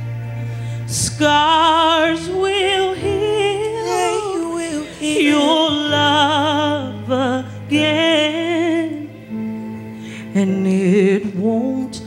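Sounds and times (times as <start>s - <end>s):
sustained keyboard chords: 0.0s - 12.0s
woman singing gospel song: 0.9s - 9.1s.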